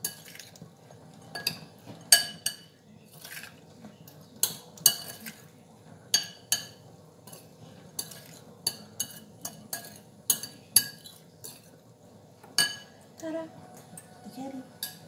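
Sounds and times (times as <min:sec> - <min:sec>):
spoon stirring salad: 0:00.0 - 0:15.0
spoon clinking against glass bowl: 0:01.3 - 0:03.4, 0:04.4 - 0:05.4, 0:06.1 - 0:11.7, 0:12.6 - 0:13.0, 0:14.8 - 0:15.0.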